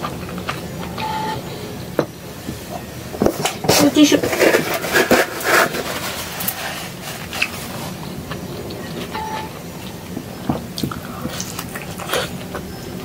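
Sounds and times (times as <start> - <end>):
low steady hum: 0.0 - 13.0
person chewing: 7.2 - 13.0.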